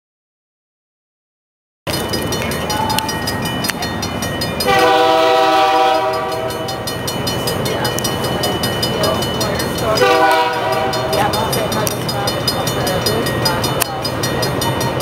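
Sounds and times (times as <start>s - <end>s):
train rumble: 1.9s - 15.0s
locomotive air horn chord: 4.6s - 6.8s, 10.0s - 11.4s.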